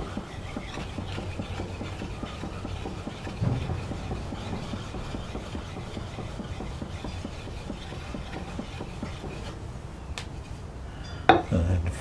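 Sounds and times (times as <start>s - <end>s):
stone scraping on steel: 0.0s - 9.6s.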